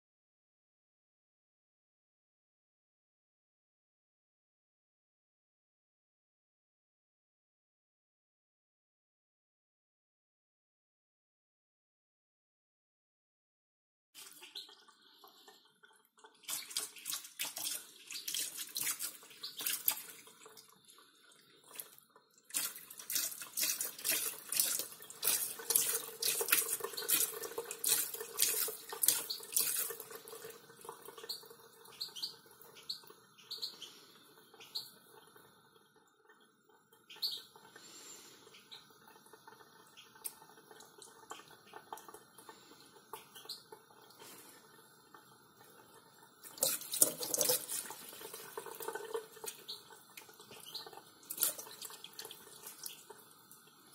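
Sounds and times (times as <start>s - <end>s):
cat lapping water: 14.2s - 32.0s, 37.6s - 53.9s.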